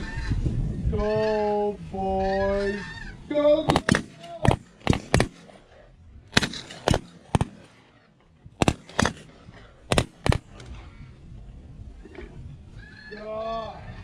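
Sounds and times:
field background: 0:00.0 - 0:14.0
shotgun blasts: 0:03.6 - 0:07.9, 0:08.5 - 0:10.6.

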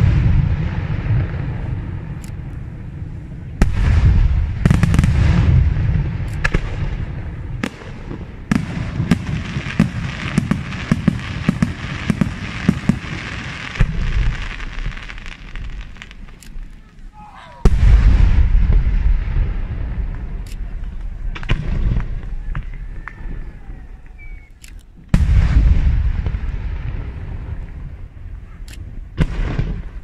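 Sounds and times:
low rumble: 0:15.5 - 0:28.4.

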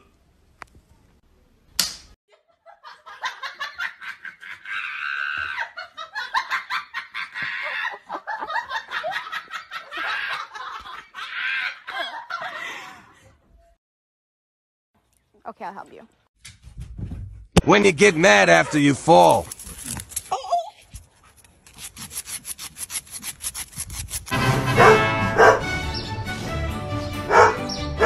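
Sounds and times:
high-pitched laughter: 0:02.3 - 0:13.0.

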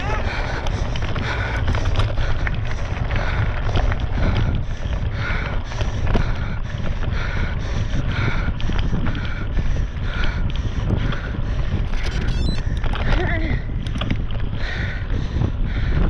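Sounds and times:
tyres on rough ground: 0:00.0 - 0:07.6, 0:11.0 - 0:14.6
wind noise on microphone: 0:00.0 - 0:16.0.

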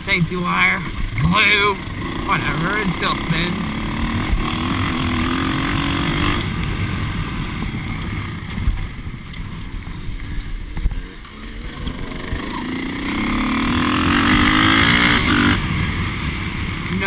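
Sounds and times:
dirt bike engine running: 0:00.0 - 0:17.0.

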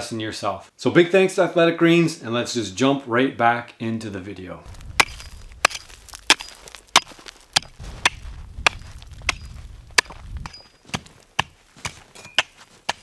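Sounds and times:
hatchet chopping ice: 0:05.0 - 0:13.0.

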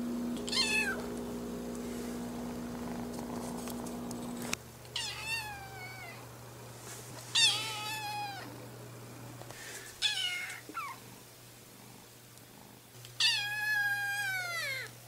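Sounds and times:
kitten meowing: 0:00.5 - 0:01.1, 0:05.0 - 0:06.2, 0:07.4 - 0:08.5, 0:10.0 - 0:11.0, 0:13.2 - 0:14.9.

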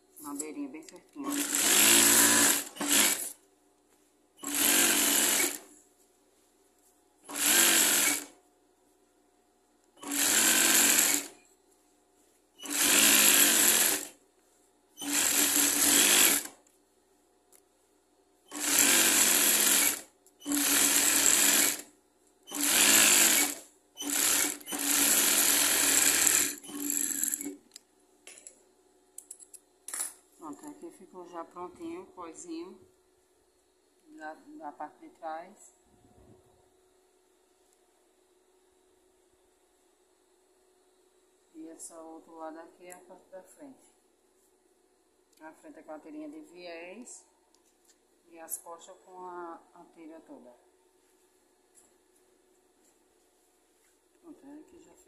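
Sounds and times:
sewing machine running: 0:01.3 - 0:03.4, 0:04.4 - 0:05.7, 0:07.3 - 0:08.3, 0:10.0 - 0:11.4, 0:12.6 - 0:14.1, 0:15.0 - 0:16.6, 0:18.5 - 0:21.9, 0:22.5 - 0:27.6.

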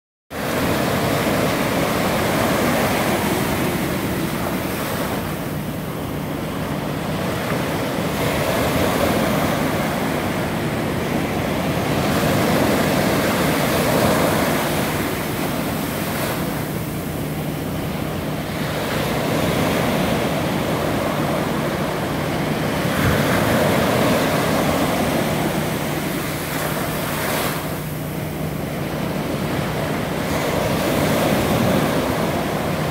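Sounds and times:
ocean surf breaking on sand: 0:00.3 - 0:32.9.

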